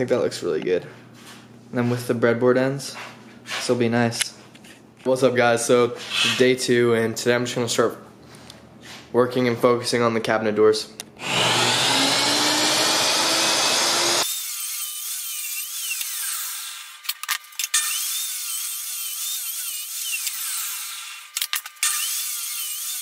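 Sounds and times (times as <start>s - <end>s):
power saw cutting wood: 11.2s - 17.1s, 17.7s - 23.0s.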